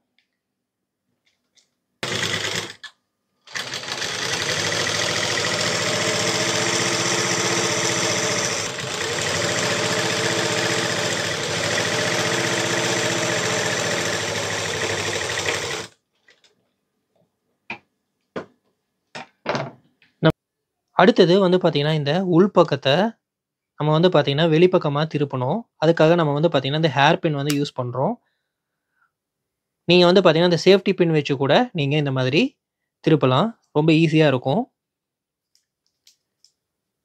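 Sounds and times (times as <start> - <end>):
sewing machine stitching: 2.0 - 16.0.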